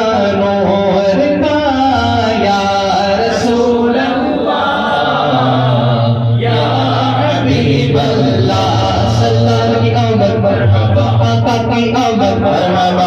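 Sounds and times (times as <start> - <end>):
man singing through a pa: 0.0 - 4.6, 5.2 - 13.0.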